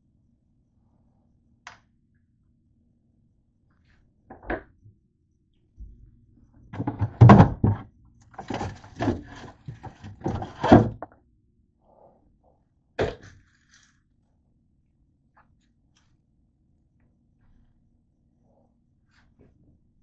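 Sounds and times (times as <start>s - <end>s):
knocks inside refrigerator: 6.8s - 7.8s
rustling of items: 6.8s - 11.0s.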